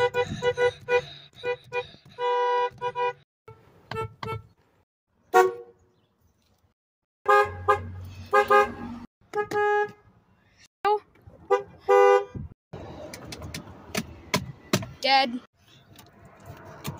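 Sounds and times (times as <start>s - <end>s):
car horn beeps: 0.0s - 4.6s, 5.3s - 5.8s, 7.2s - 10.1s, 11.5s - 12.5s.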